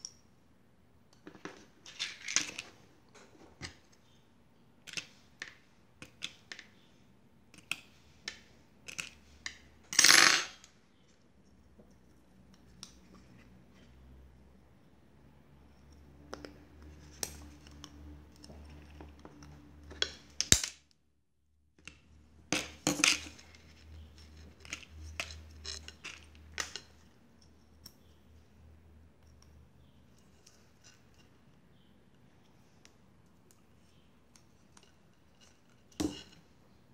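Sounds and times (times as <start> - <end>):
small parts clicking and clinking: 7.5 - 10.7, 21.8 - 28.2.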